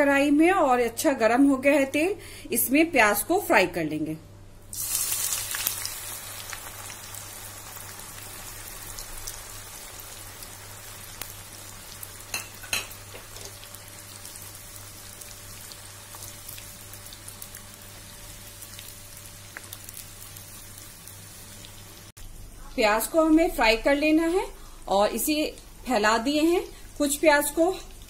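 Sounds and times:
onions sizzling in hot oil: 4.7 - 24.1, 24.9 - 28.0.

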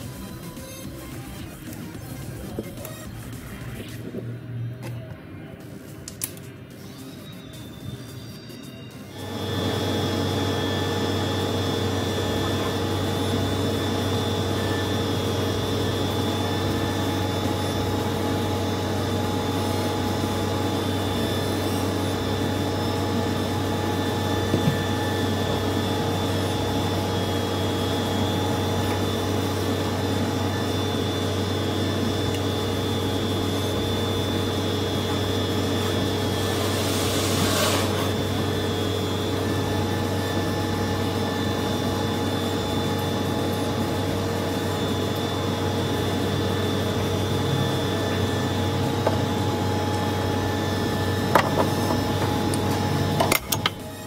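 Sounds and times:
mechanical hum with held tones: 0.0 - 54.0.

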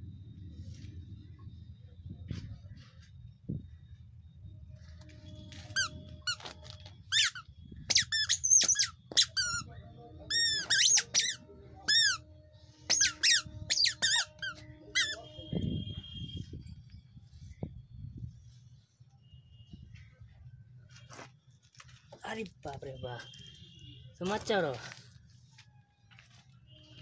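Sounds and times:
squeaky shoes squeaking: 5.3 - 9.7, 10.3 - 12.2, 12.9 - 15.3.

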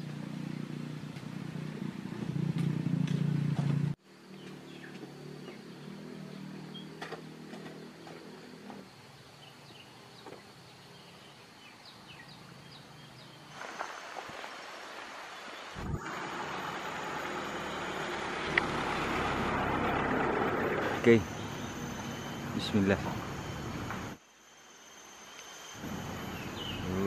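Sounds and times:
engine hum: 0.0 - 9.4, 15.8 - 24.2, 25.6 - 27.0
faint high chirps: 20.8 - 27.0.

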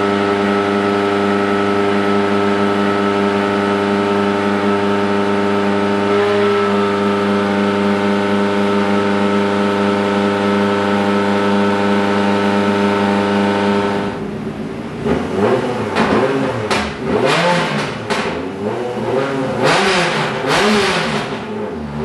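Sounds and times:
race engine at high revs: 0.0 - 22.0.

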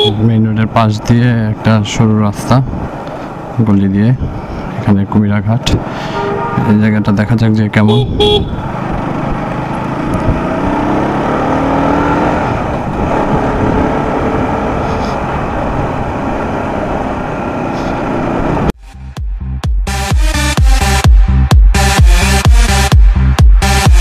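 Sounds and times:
wind and road noise: 0.0 - 18.8
motorcycle engine running: 7.9 - 14.8.

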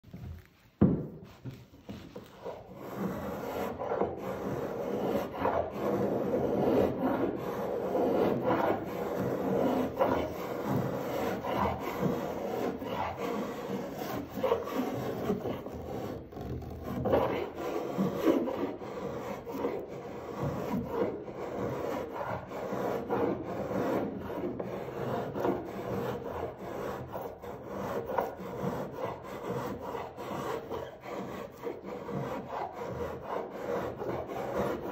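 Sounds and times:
blade scraping wood: 0.8 - 34.9.

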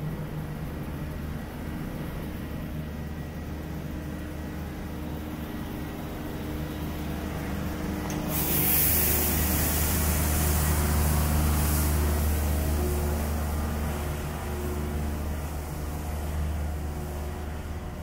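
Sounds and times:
loud steady hiss: 8.2 - 17.8.

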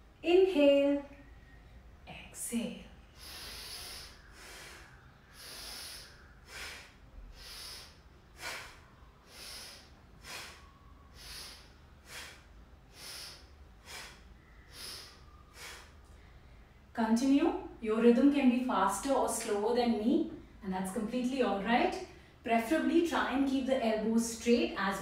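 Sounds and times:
woman breathing in and out: 3.0 - 16.9.

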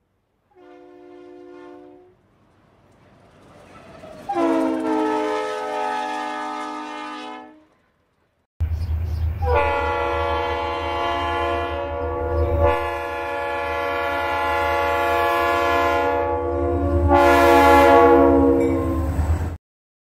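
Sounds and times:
locomotive air horn blasts: 0.5 - 2.2, 4.3 - 7.9, 9.4 - 19.2
locomotive engines rumbling: 1.0 - 19.6.

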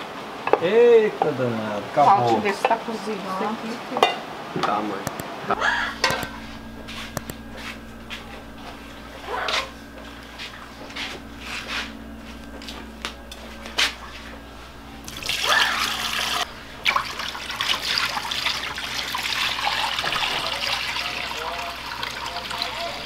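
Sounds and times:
water poured into a sink: 15.1 - 23.0.

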